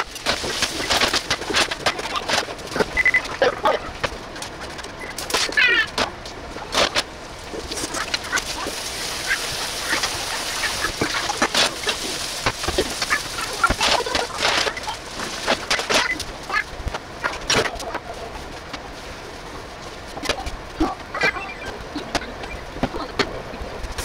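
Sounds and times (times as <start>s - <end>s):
noodles sizzling in frying pan: 7.3s - 16.6s.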